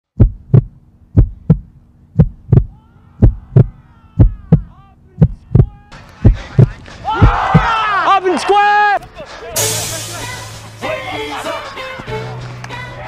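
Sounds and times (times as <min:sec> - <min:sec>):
steady low hum: 0:00.1 - 0:07.0
heartbeat thumps: 0:00.1 - 0:07.8.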